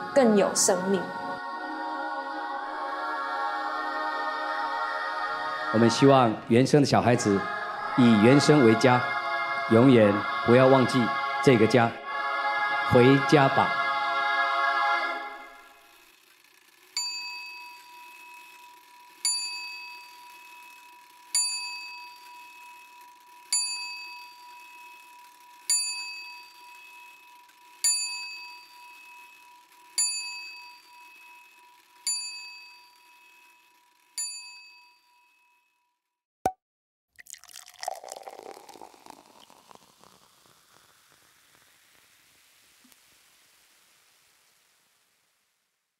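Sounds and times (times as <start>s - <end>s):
small bell chime: 17.0s - 18.4s, 19.2s - 35.9s
faint steady hum: 37.6s - 45.9s.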